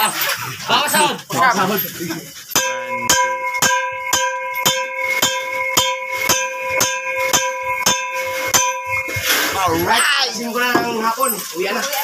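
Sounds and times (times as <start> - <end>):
metal struck ringing: 2.5 - 11.0.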